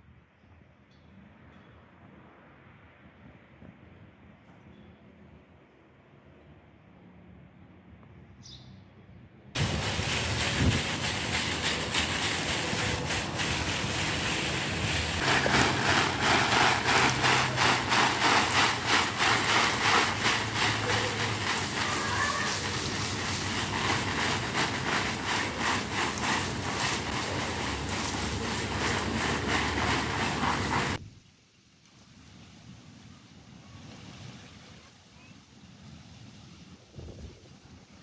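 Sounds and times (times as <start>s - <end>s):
hose spraying water on leaves: 9.6s - 38.0s.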